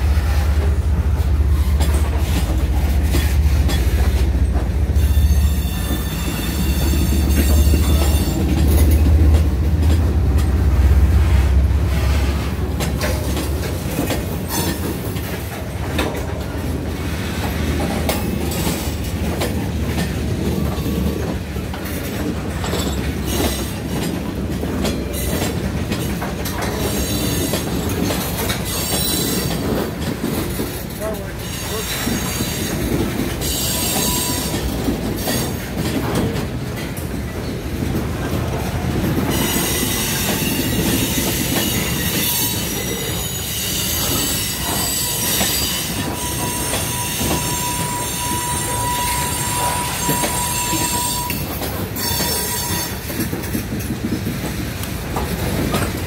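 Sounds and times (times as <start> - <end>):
freight train wheels rumbling: 0.0 - 56.0
wheels clicking on rail joints: 0.0 - 56.0
high-pitched wheel squeal: 5.0 - 8.5, 39.3 - 53.0.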